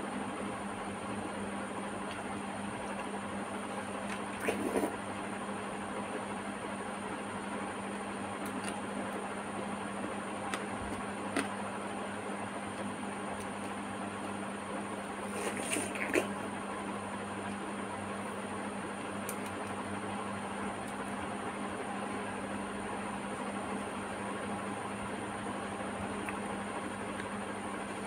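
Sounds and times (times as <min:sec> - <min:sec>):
background hum and hiss: 0:00.0 - 0:28.0
watermelon being bitten and chewed: 0:03.9 - 0:05.0.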